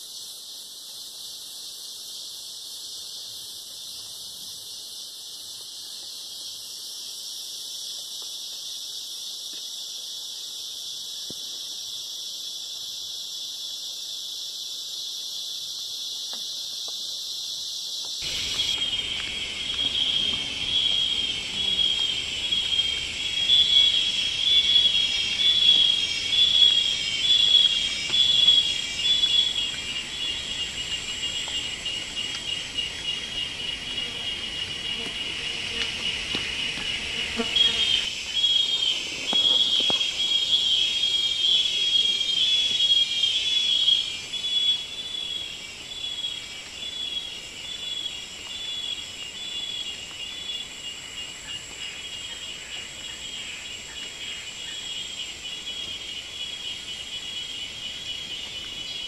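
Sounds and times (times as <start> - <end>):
pulsing insect chorus: 0.0 - 59.0
high-pitched insect drone: 17.6 - 59.0.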